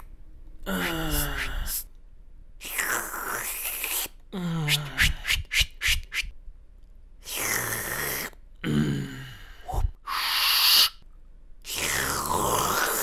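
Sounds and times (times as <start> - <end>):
low groan: 8.6 - 9.9.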